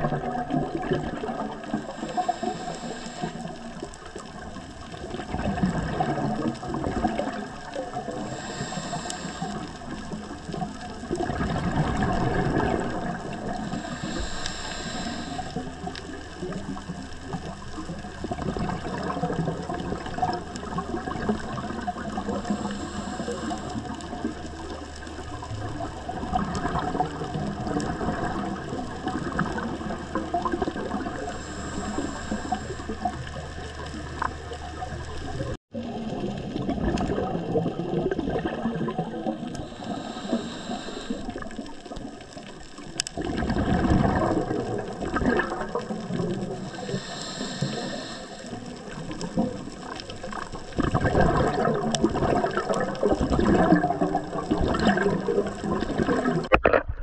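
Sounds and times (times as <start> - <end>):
bubbling water: 0.0 - 57.0
scuba regulator hissing: 39.7 - 41.3, 46.8 - 48.4.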